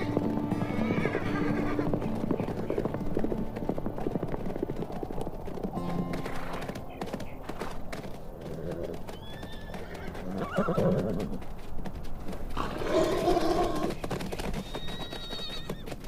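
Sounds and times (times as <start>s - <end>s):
horse whinnying: 0.0s - 2.1s, 8.5s - 11.4s, 12.6s - 14.0s, 14.6s - 16.0s
hooves clopping on gravel: 0.0s - 16.0s.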